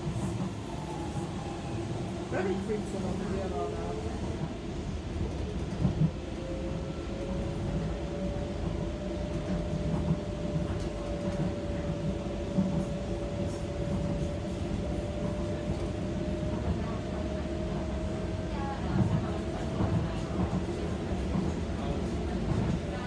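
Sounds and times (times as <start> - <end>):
train rumbling on track: 0.0 - 23.0.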